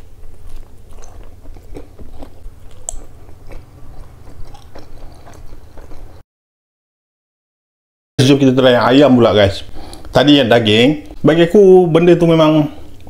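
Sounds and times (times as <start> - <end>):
mouth chewing food: 0.0 - 6.2.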